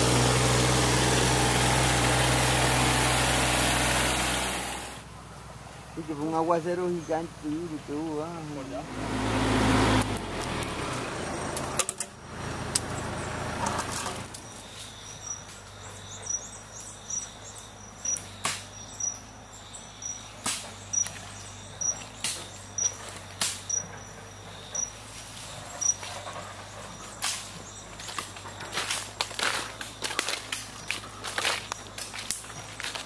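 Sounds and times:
machine engine running: 0:00.0 - 0:05.8
footsteps crunching through dry leaves: 0:25.0 - 0:33.0.

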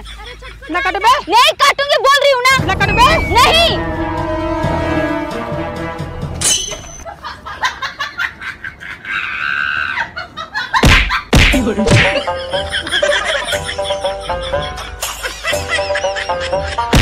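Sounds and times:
laughter: 0:00.0 - 0:01.4, 0:07.0 - 0:16.9
shrill cry: 0:02.6 - 0:04.0, 0:09.1 - 0:10.2
background music: 0:02.6 - 0:07.0, 0:11.6 - 0:17.0.

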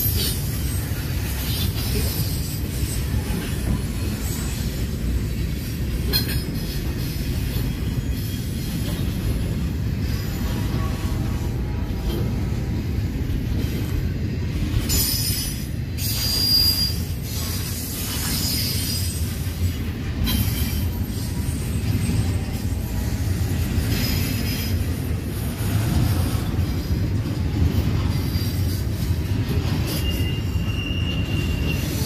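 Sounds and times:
train rumbling on rails: 0:00.0 - 0:32.0
high wheel squeals: 0:07.3 - 0:09.1, 0:14.9 - 0:19.5, 0:29.5 - 0:32.0.

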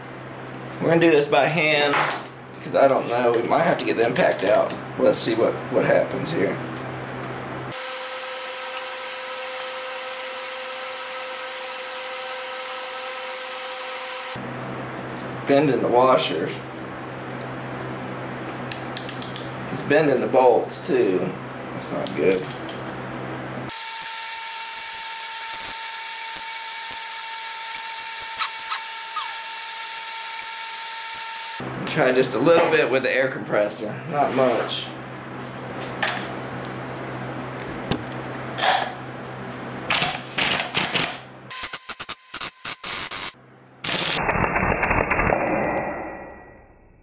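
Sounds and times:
air compressor running: 0:07.7 - 0:14.4, 0:23.7 - 0:31.6
short squeak: 0:28.3 - 0:29.4.

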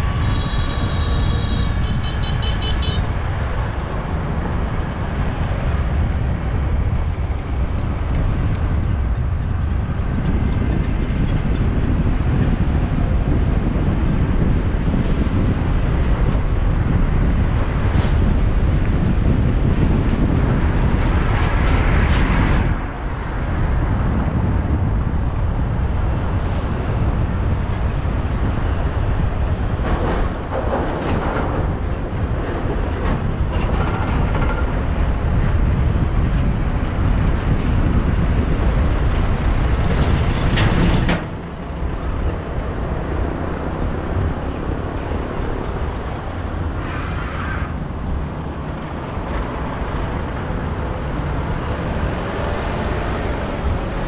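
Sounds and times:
low road rumble: 0:00.0 - 0:54.0
passing traffic: 0:00.0 - 0:54.0.

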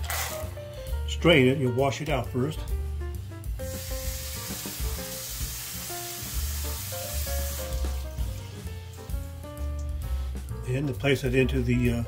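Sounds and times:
faucet water running: 0:00.0 - 0:00.5, 0:03.6 - 0:10.1.

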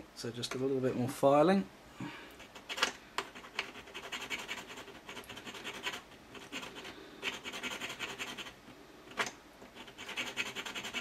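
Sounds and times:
file rasping on metal: 0:03.4 - 0:08.6, 0:09.8 - 0:11.0.

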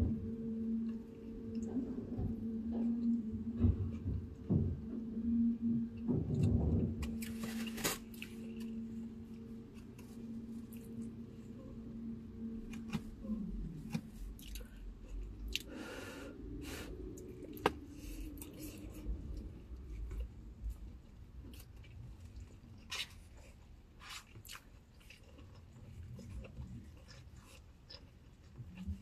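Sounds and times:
low rumble: 0:00.0 - 0:22.8
steady hum: 0:00.0 - 0:29.0
chewing: 0:21.4 - 0:29.0.

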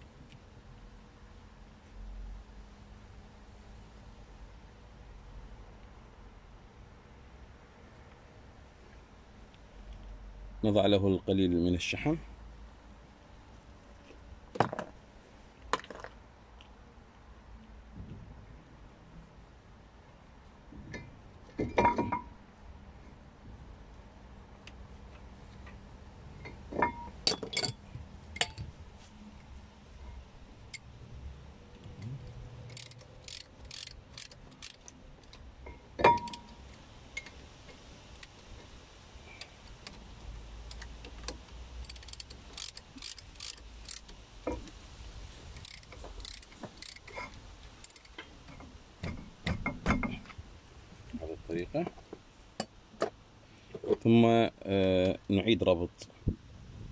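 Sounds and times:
ratchet clicking: 0:31.8 - 0:35.4, 0:38.1 - 0:38.4, 0:41.8 - 0:44.2, 0:45.5 - 0:48.2.

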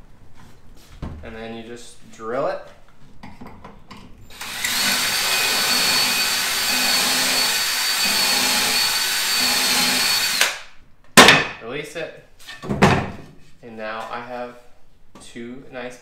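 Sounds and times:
cordless drill boring into wood: 0:04.3 - 0:10.6.

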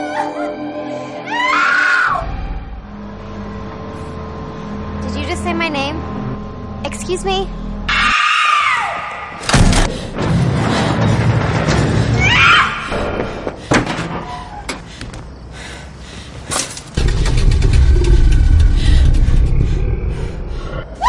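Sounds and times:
tense film music: 0:00.0 - 0:16.4, 0:17.0 - 0:21.0
loud low surge: 0:17.0 - 0:20.9.

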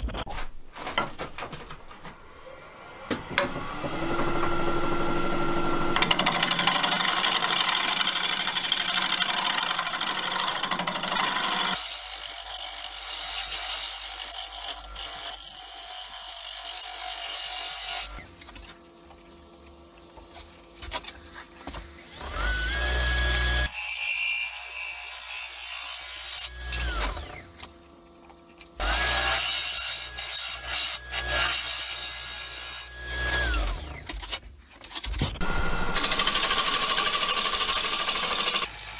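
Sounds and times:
lathe motor whine: 0:35.4 - 0:38.6.

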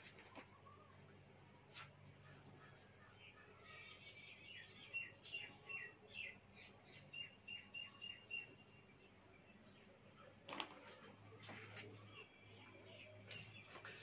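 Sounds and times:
faint bird chirps: 0:00.0 - 0:14.0.

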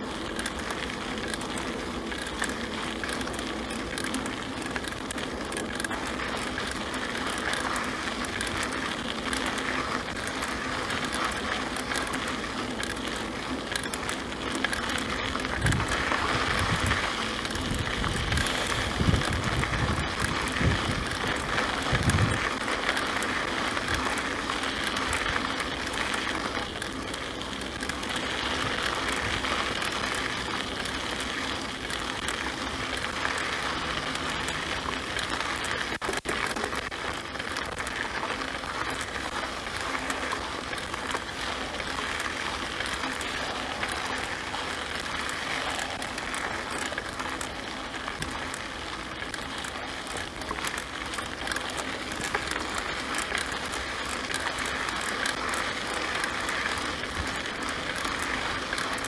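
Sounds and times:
bike rattles and clicks: 0:00.0 - 0:59.0
bike tyres on dirt: 0:00.0 - 0:59.0.

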